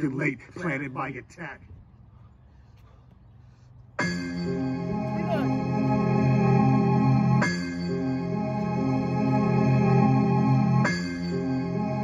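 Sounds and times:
instrumental hip-hop music: 0:04.0 - 0:12.0.

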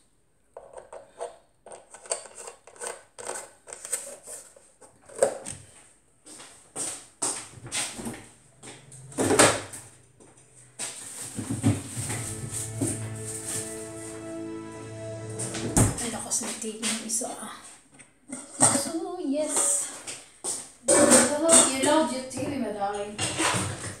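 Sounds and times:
background music: 0:11.8 - 0:17.0.

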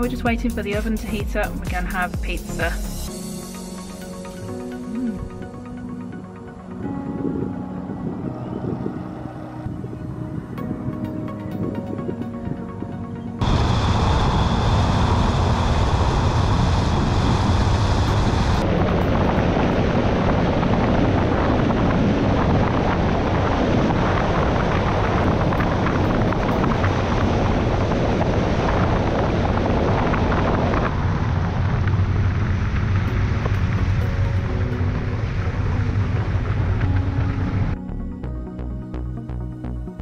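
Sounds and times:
wind buffeting microphone: 0:06.1 - 0:37.8
road noise: 0:13.4 - 0:37.8.

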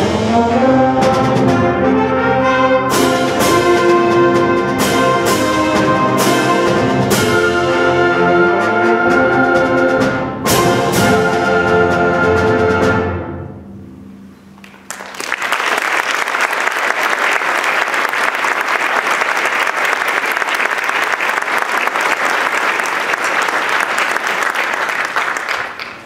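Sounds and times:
audience applauding: 0:14.6 - 0:26.0.

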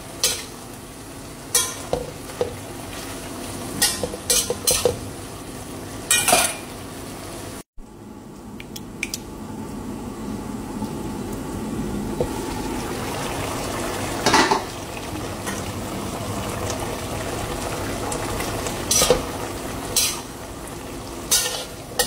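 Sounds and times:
food sizzling: 0:00.0 - 0:07.7, 0:10.2 - 0:22.0
spatula scraping and knocking pan: 0:03.8 - 0:05.0.

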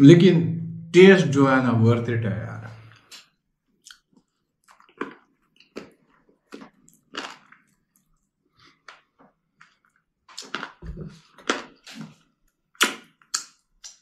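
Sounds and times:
man chewing and smacking lips: 0:02.9 - 0:14.0.

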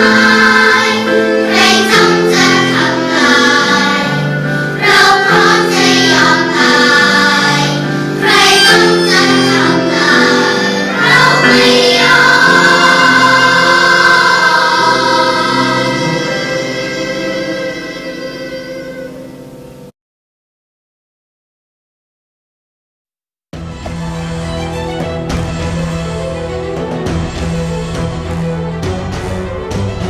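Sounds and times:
children's choir singing: 0:00.0 - 0:19.8.

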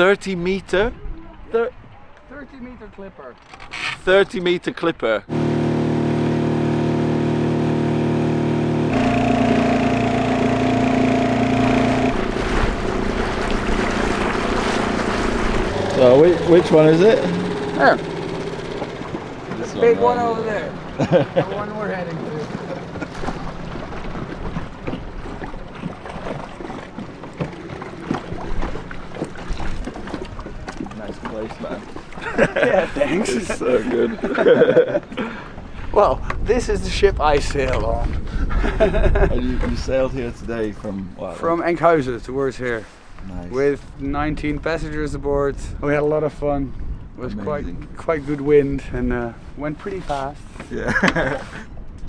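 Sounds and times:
low steady hum: 0:05.3 - 0:23.6
rushing water: 0:05.3 - 0:34.5
outboard motor running: 0:05.3 - 0:34.6
wind noise: 0:35.6 - 0:40.8, 0:43.7 - 0:49.6.

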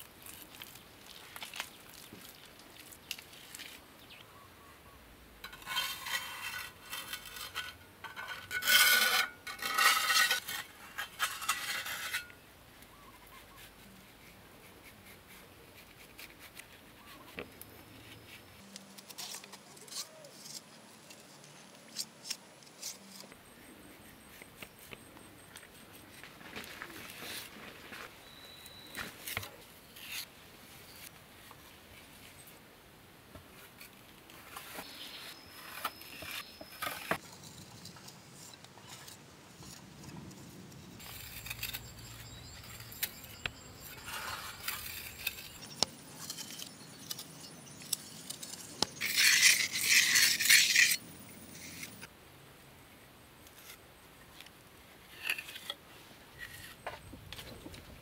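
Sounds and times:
trowel scraping mud plaster: 0:05.4 - 0:12.4, 0:33.7 - 0:40.1, 0:41.0 - 0:52.1.

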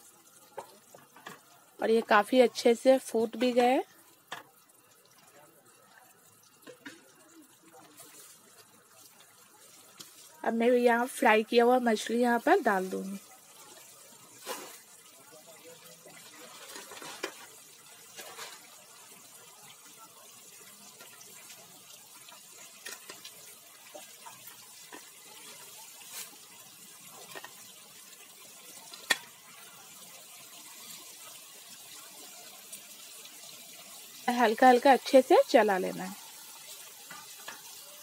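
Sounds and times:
gravy bubbling in a pan: 0:00.0 - 0:38.0.

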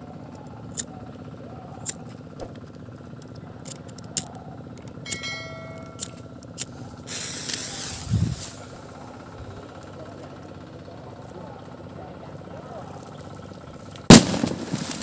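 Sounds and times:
fuse hissing: 0:06.6 - 0:09.6.

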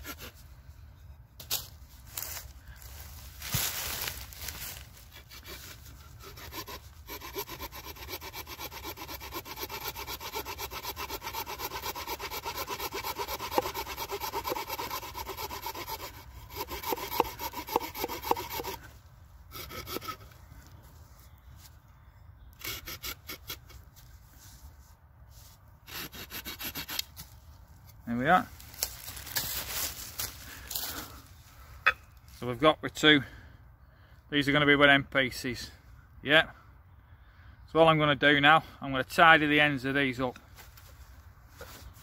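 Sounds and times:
small saw cutting a stick: 0:00.0 - 0:00.4, 0:05.1 - 0:18.9, 0:19.5 - 0:20.4, 0:22.6 - 0:23.9, 0:25.8 - 0:27.4.

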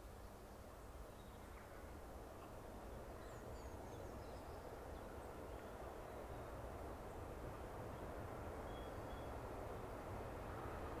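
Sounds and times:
distant steam train rumble: 0:00.0 - 0:11.0
faint bird chirps: 0:08.6 - 0:09.4.

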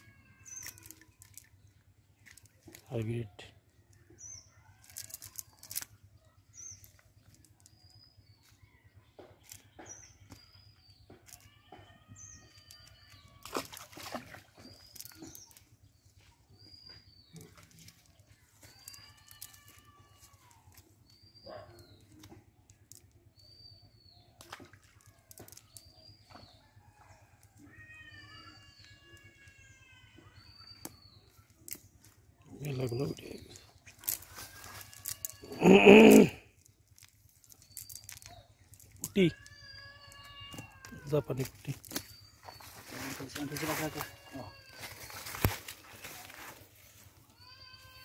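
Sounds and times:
clicks and rustles of wet net: 0:00.3 - 0:03.0, 0:03.9 - 0:06.1, 0:11.2 - 0:15.7, 0:17.3 - 0:21.2, 0:30.8 - 0:35.5, 0:36.6 - 0:47.8.

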